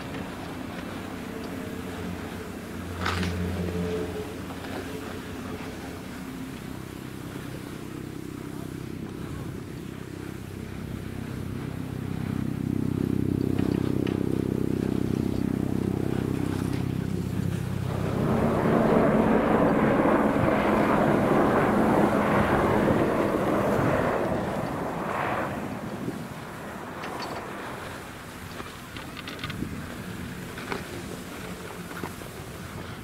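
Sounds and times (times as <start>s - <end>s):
low hum of lift rope: 0.0s - 33.0s
skis sliding on snow: 27.2s - 33.0s.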